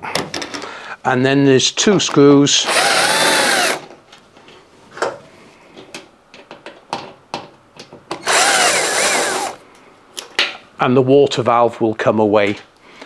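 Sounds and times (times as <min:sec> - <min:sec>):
cordless drill motor whine: 0:02.7 - 0:03.8, 0:08.2 - 0:09.6.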